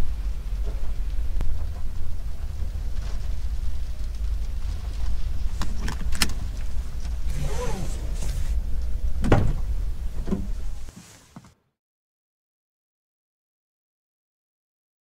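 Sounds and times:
low rumble in cab: 0.0 - 11.7
car door opening: 5.6 - 11.6
door clunk: 9.2 - 10.7.

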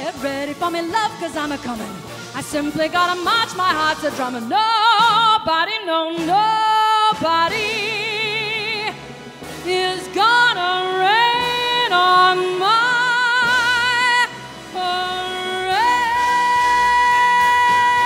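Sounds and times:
woman singing with vibrato: 0.0 - 18.0.

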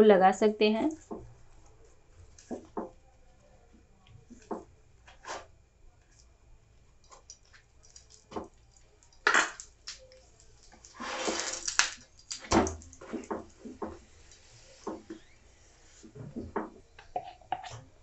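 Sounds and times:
ghee sizzling: 7.1 - 16.0.

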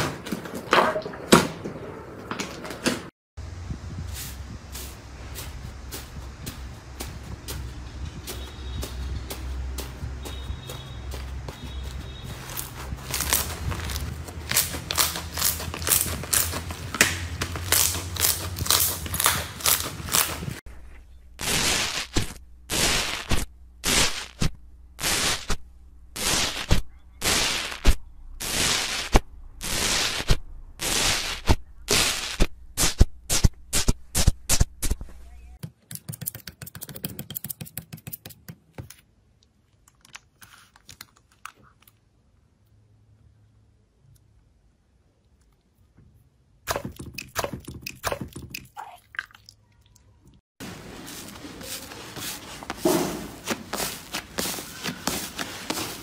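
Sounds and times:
crunchy slime crackling: 12.5 - 20.4
slime bag squishing: 12.5 - 20.6
metal tool crunching slime: 13.1 - 20.5.

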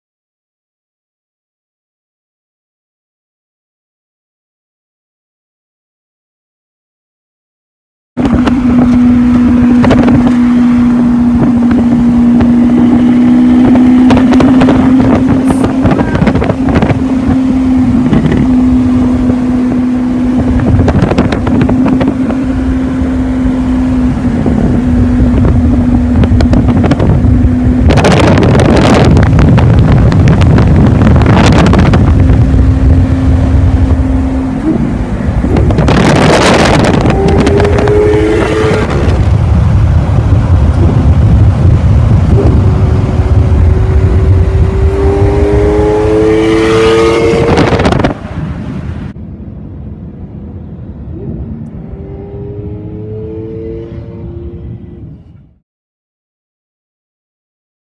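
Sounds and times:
car engine droning at speed: 8.2 - 55.6
engine revving hard: 8.4 - 39.3, 42.1 - 48.2, 51.5 - 55.0.

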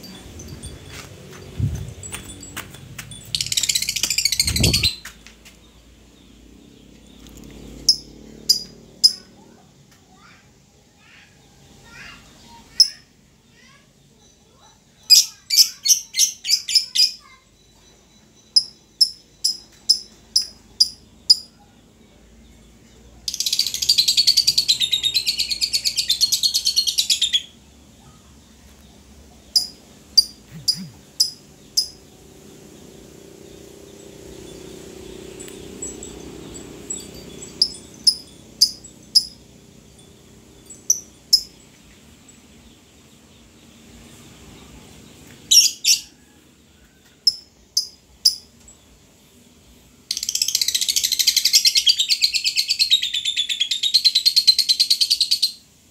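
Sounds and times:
bird chirps: 0.0 - 10.4, 11.0 - 55.7
bird trilling: 3.1 - 5.2, 7.8 - 9.5, 29.5 - 32.1, 34.4 - 41.6.

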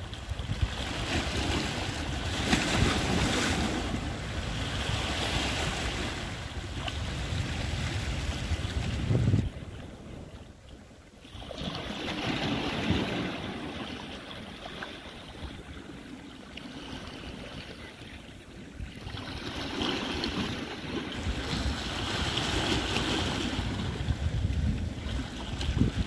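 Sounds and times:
sea waves washing against rocks: 0.0 - 10.4, 11.3 - 26.0
wind buffeting microphone: 0.0 - 10.5, 18.6 - 26.0.

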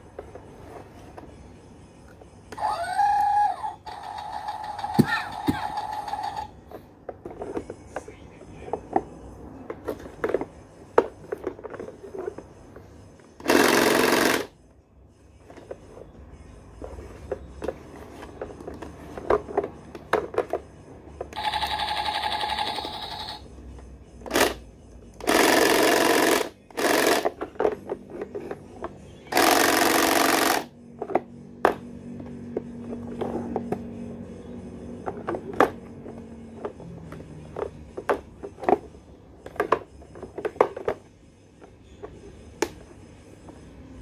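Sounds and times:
toy tonal sound effect: 2.6 - 6.5, 21.4 - 23.5
toy rattling sound effects: 2.8 - 6.5, 21.4 - 23.4
plastic toy clicks and knocks: 3.9 - 6.5.

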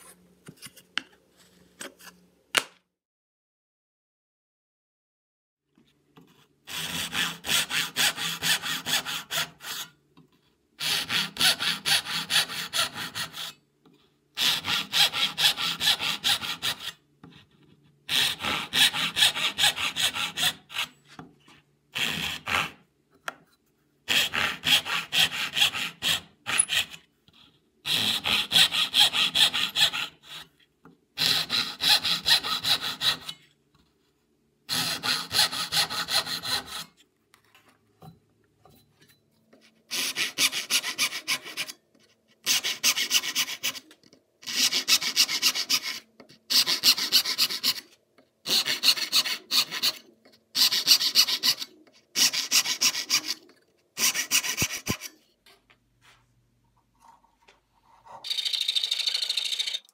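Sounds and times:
hand saw cutting wood: 6.7 - 9.9, 10.8 - 13.6, 14.4 - 17.0, 18.1 - 21.0, 22.0 - 22.8, 24.1 - 27.0, 27.9 - 30.5, 31.2 - 33.4, 34.7 - 37.0, 39.9 - 41.7, 44.4 - 47.9, 48.5 - 50.0, 50.6 - 55.1.

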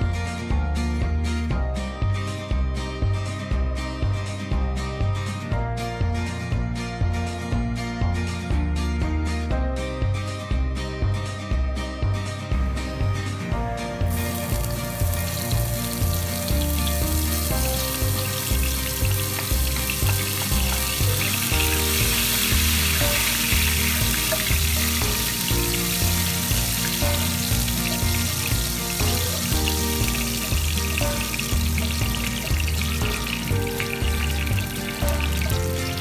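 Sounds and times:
background music: 0.0 - 36.0
garlic sizzling in hot oil: 14.1 - 36.0.

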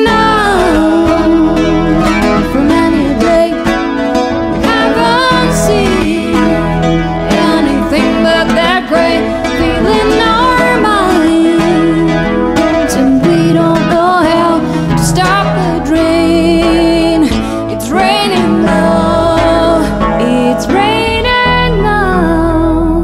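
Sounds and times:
acoustic guitar: 0.0 - 23.0
wordless singing: 4.5 - 12.2, 12.8 - 23.0.

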